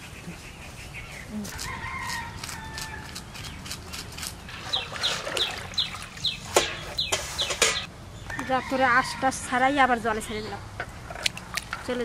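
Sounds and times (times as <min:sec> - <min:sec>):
chickens clucking: 0:04.5 - 0:07.9.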